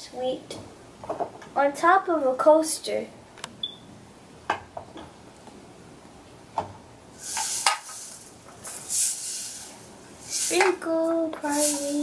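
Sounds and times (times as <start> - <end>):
sprinkles rattling in tumbler: 7.2 - 10.8, 11.4 - 12.0.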